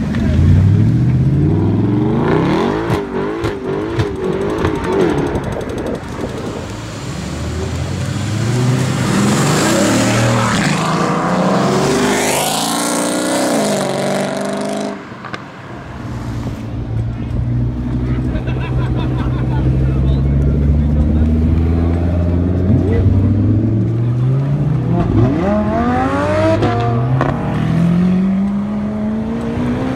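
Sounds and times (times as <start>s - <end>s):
sports car engine revving: 0.1s - 5.7s, 19.6s - 29.9s.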